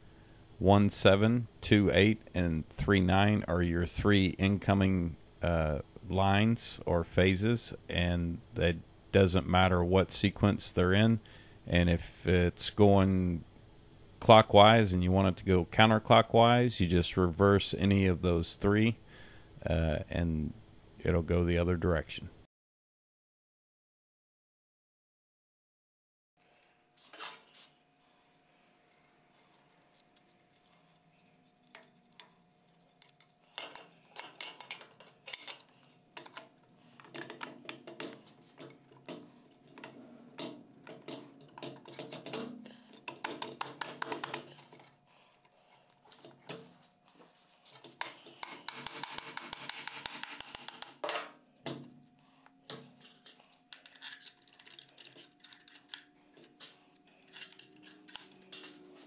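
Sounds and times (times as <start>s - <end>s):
metal tool clinking and scraping: 27.1s - 50.9s, 52.7s - 59.0s.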